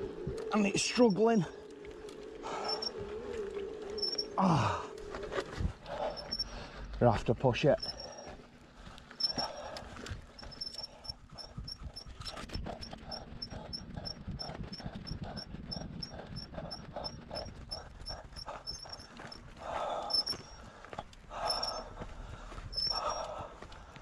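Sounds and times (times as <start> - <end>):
man panting heavily: 7.8 - 24.0.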